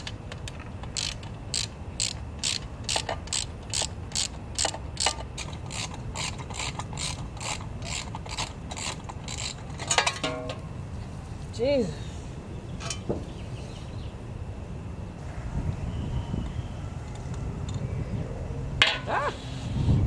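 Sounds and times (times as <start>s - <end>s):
socket ratchet clicking: 0.0s - 10.0s.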